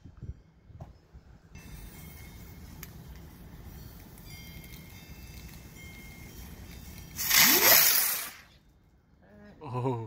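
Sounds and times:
firework launching hiss: 6.7s - 8.6s.

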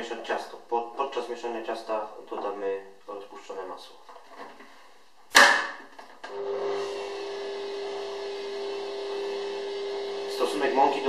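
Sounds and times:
stand mixer motor humming: 6.3s - 11.0s.

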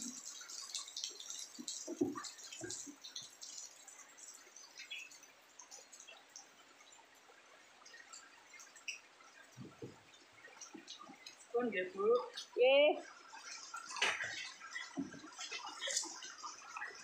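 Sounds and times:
faint water hiss: 0.0s - 17.0s
water dripping: 0.0s - 17.0s
soft knocks: 9.6s - 10.0s.

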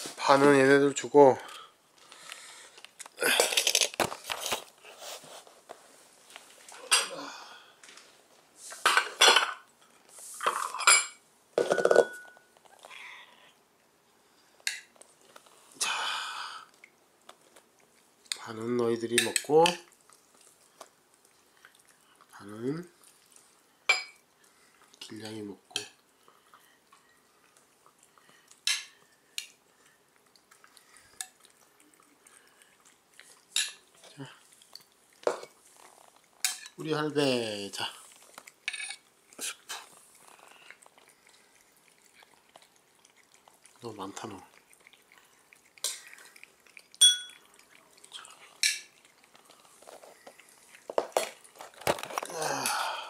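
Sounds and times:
cats chewing and lapping food: 0.0s - 53.0s
ceramic tableware clinking: 10.5s - 12.4s, 47.0s - 47.4s
ceramic dish clinks: 47.0s - 47.4s.

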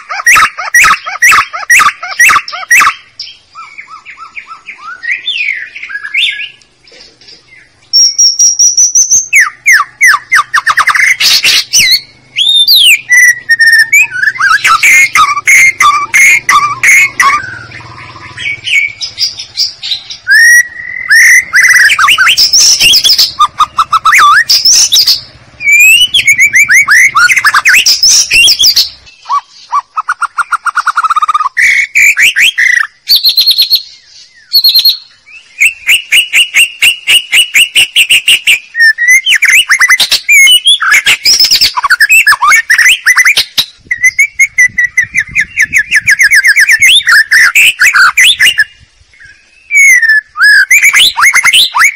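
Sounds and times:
bird song whistles: 0.0s - 51.9s.

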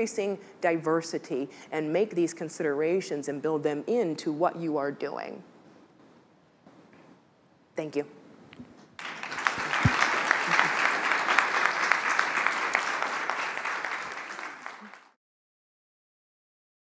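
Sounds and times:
audience applauding: 9.0s - 15.2s.

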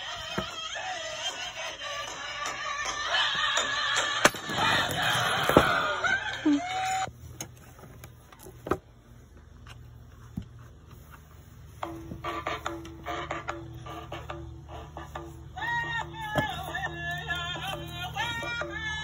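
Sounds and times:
music from phone speaker: 0.0s - 7.1s, 11.8s - 19.0s.

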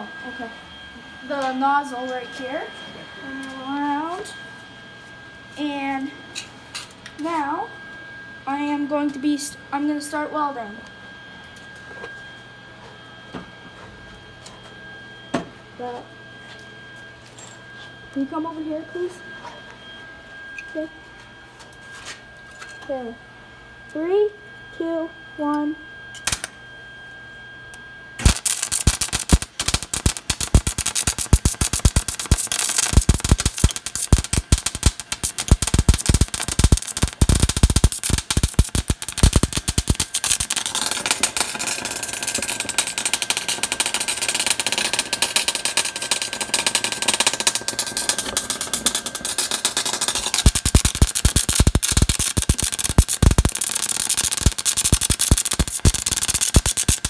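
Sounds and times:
welding arc crackling: 26.2s - 26.5s, 28.2s - 57.0s.

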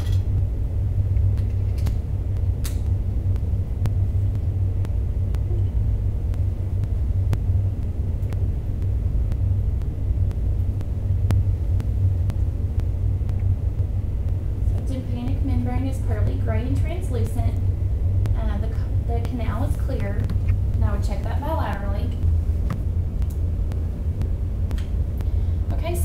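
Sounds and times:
low rumble: 0.0s - 26.0s.

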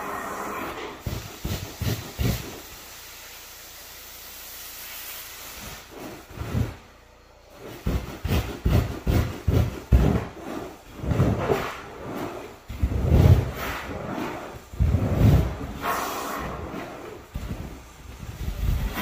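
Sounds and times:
rubbing and thumping strokes: 0.7s - 2.7s, 7.5s - 19.0s.

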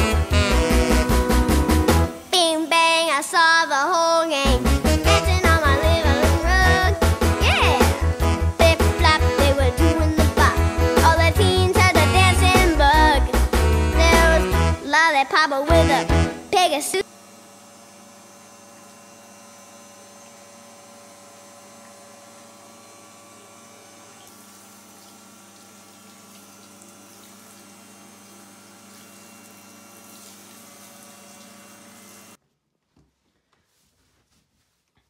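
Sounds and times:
shower spray into bathtub: 24.0s - 32.4s.

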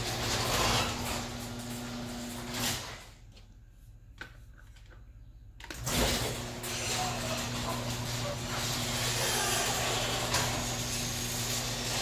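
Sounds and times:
door rumbling along tracks: 0.0s - 3.0s, 5.8s - 12.0s
garage door opener motor hum: 0.0s - 3.2s, 5.7s - 12.0s.

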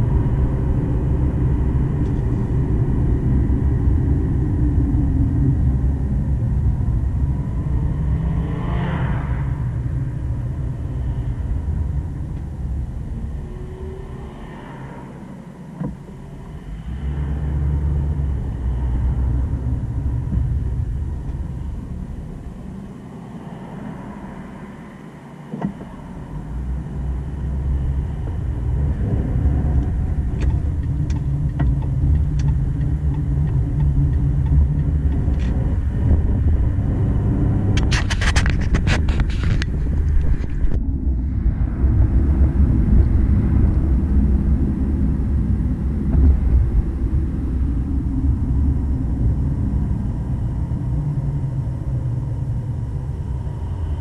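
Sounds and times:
car road and engine rumble: 0.0s - 54.0s
sharp clicks and rattles: 29.8s - 36.3s, 37.7s - 40.8s.

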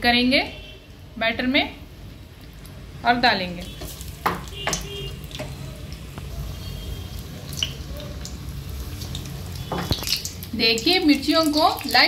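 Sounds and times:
chillies deep-frying in oil: 2.4s - 12.0s.

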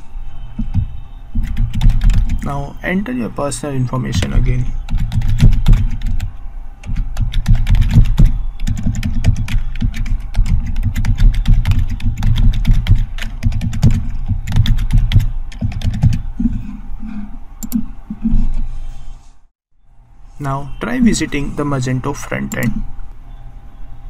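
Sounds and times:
computer keyboard typing: 0.6s - 2.5s, 4.1s - 16.3s, 22.4s - 22.8s.

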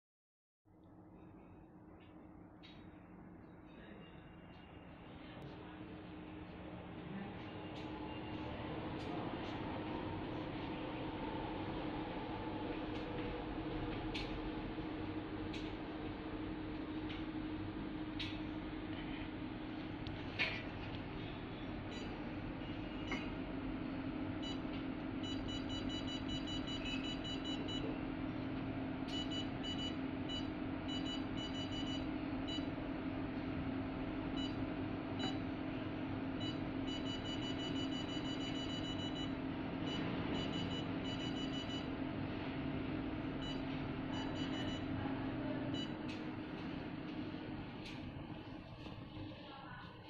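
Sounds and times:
low machine hum: 0.7s - 50.0s
machine beeping: 21.2s - 23.4s, 24.3s - 28.0s, 29.0s - 32.8s, 34.4s - 35.5s, 36.4s - 42.4s, 43.2s - 45.0s, 45.7s - 46.3s.

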